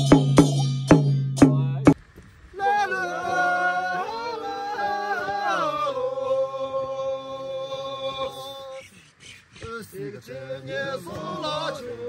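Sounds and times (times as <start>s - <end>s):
group singing unaccompanied: 2.5s - 9.0s, 9.6s - 12.0s.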